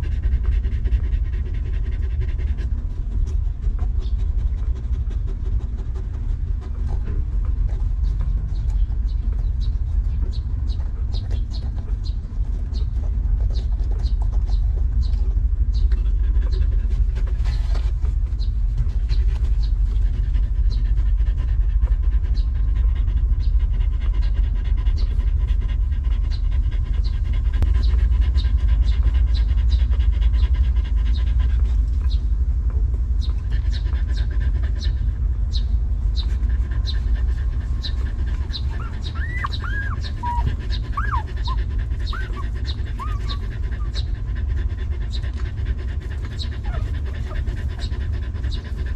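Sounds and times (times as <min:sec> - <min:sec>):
dog panting: 0:00.0 - 0:48.9
puppies squeaking: 0:36.7 - 0:44.2, 0:46.3 - 0:48.0.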